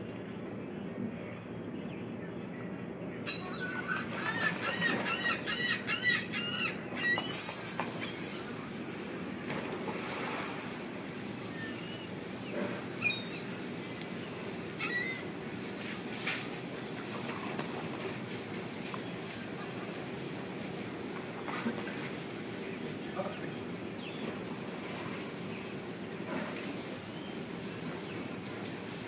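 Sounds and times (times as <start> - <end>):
steady low hum: 0.0 - 29.0
gull calling: 3.2 - 7.4, 14.8 - 15.3.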